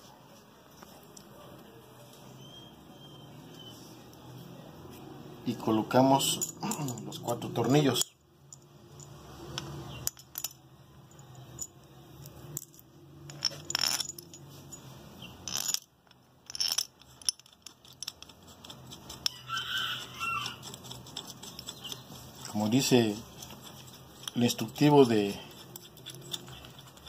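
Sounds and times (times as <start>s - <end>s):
screws clinking against metal: 5.9s - 19.4s, 20.6s - 27.0s.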